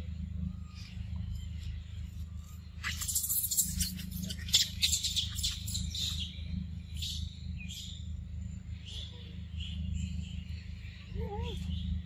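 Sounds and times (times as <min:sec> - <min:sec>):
steady low rumble: 0:00.0 - 0:12.0
high bird chirps: 0:02.4 - 0:08.0.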